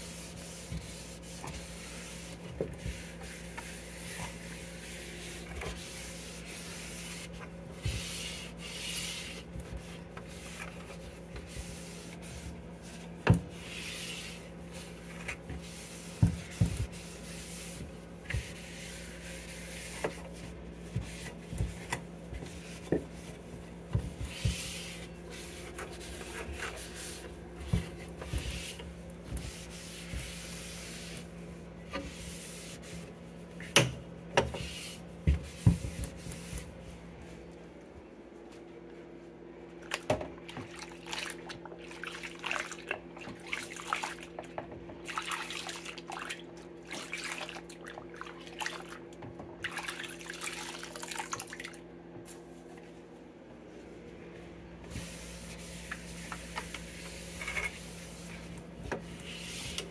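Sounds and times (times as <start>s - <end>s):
cloth wiping plastic bin: 0.0s - 33.4s, 34.4s - 37.4s, 54.8s - 59.9s.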